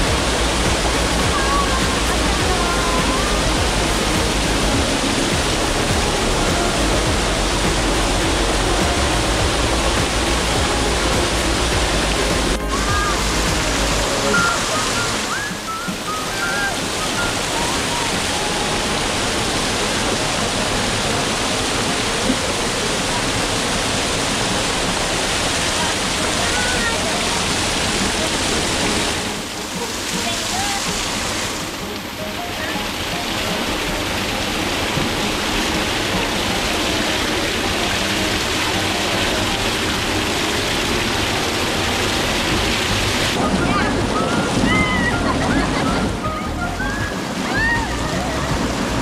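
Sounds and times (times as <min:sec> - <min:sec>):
waterfall rushing over boulders: 0:00.0 - 0:49.0.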